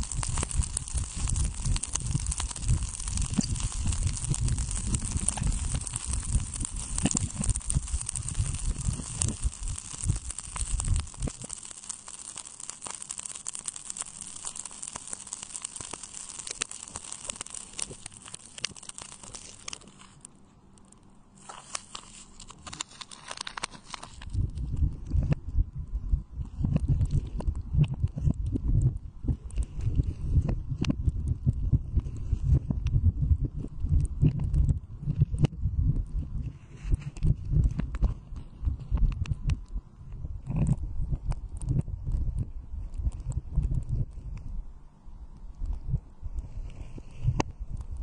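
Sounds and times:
low rumble: 0.0s - 11.6s, 24.2s - 46.7s
water beads clicking in plastic cup: 0.0s - 24.4s.

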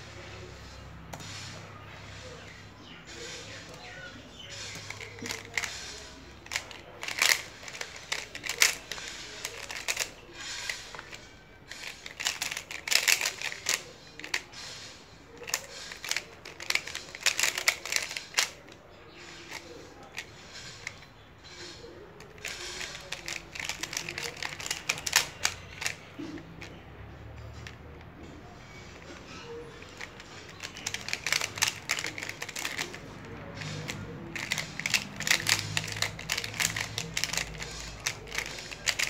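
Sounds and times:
plastic puzzle clicking: 4.6s - 14.5s, 15.4s - 18.8s, 19.4s - 26.8s, 29.8s - 39.0s.

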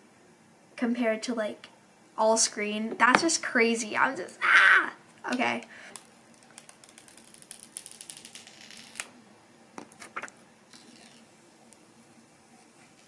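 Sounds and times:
plastic wrap crinkling: 6.0s - 9.1s.

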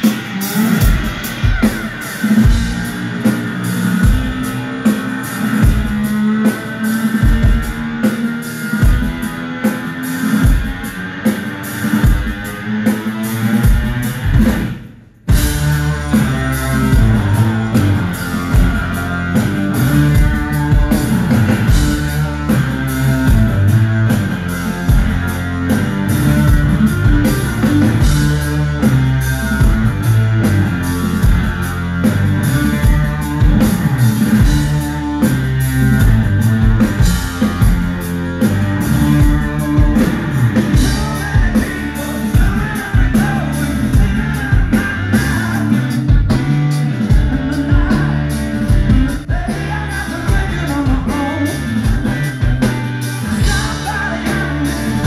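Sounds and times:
drum kit beat: 0.0s - 55.0s
electric guitars: 0.0s - 55.0s
rock band playing live: 0.0s - 55.0s
person singing: 15.4s - 24.9s, 38.8s - 52.4s, 53.2s - 55.0s.

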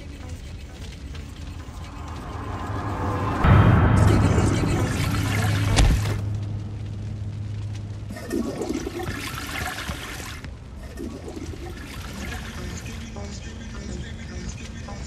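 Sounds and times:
toilet flushing: 8.1s - 12.6s.

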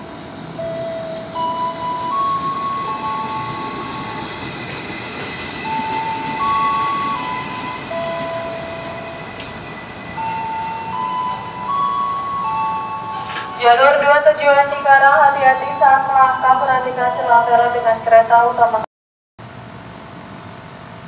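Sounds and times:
electric train rumble and hiss: 0.0s - 18.8s
chime-like melody: 0.6s - 16.8s.

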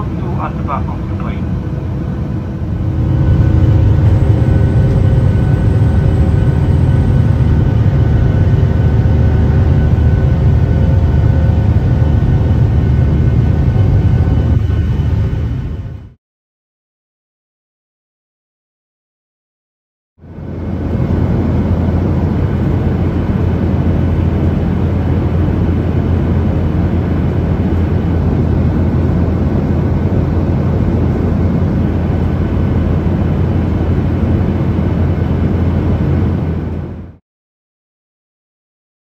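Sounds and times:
jet aircraft rushing roar: 0.0s - 16.2s, 20.2s - 37.2s
strong low hum: 0.0s - 16.2s.

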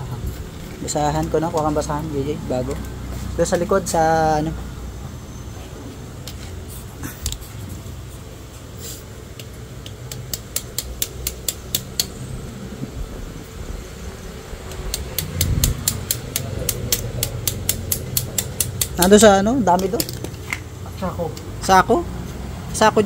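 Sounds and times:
steady low hum: 0.0s - 23.0s
sharp rapid clicking: 9.4s - 12.2s, 14.6s - 19.2s.

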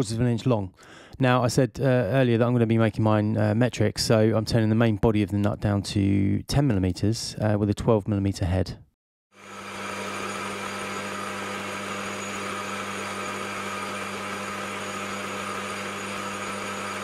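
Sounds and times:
cutting tool turning metal: 9.4s - 17.0s
lathe motor hum: 9.4s - 17.0s.

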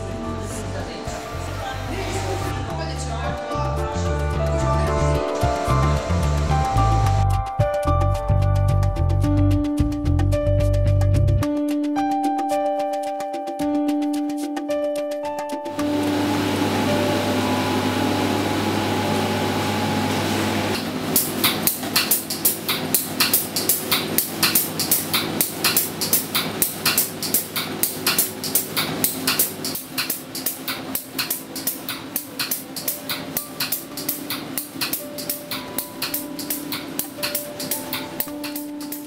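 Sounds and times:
held synth chords: 0.0s - 10.5s, 11.4s - 39.0s
fast clicking percussion beat: 11.0s - 15.8s, 21.2s - 39.0s.

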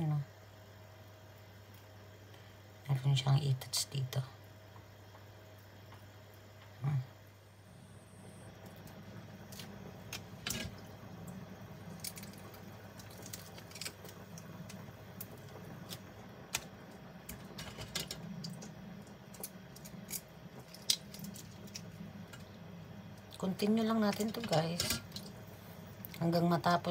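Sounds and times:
low steady hum: 0.0s - 26.9s
wet squishing of shrimp peeling: 11.9s - 14.4s.

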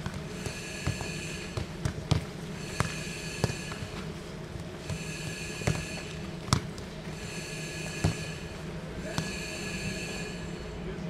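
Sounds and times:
football kicks: 0.0s - 7.1s, 7.8s - 8.4s, 9.0s - 9.6s.

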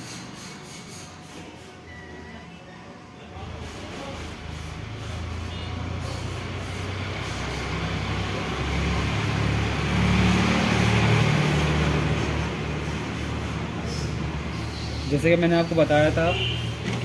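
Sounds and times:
hot air blower hissing: 3.5s - 16.9s.

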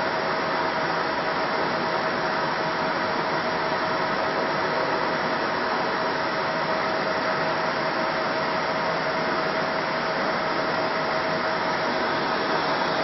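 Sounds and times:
cooling fans humming: 0.1s - 13.0s
mid-pitched whine: 9.2s - 13.0s.

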